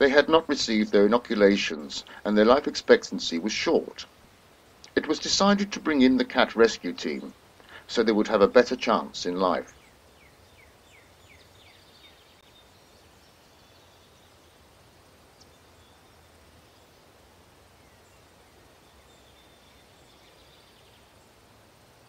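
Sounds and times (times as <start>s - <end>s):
outdoor background hiss: 0.0s - 22.0s
small bird singing: 4.8s - 21.4s.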